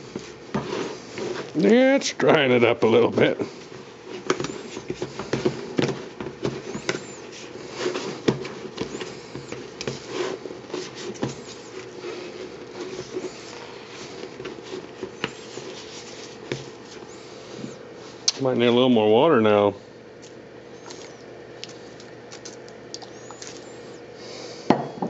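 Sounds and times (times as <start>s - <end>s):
stick churning gritty litter: 0.0s - 18.7s.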